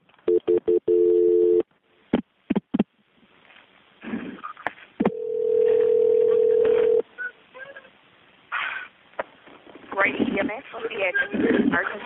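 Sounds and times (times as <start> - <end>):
steady dial tone: 0.3 - 1.7, 5.0 - 7.0.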